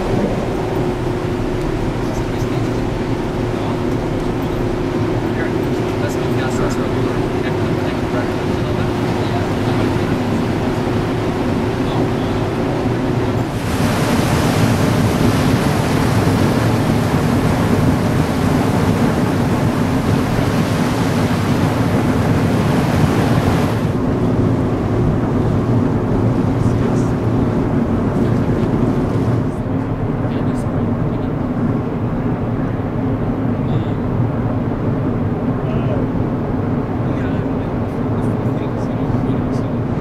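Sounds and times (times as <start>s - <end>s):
wake water rushing hiss: 0.0s - 24.0s
ferry engines humming: 0.0s - 40.0s
wind: 0.0s - 40.0s.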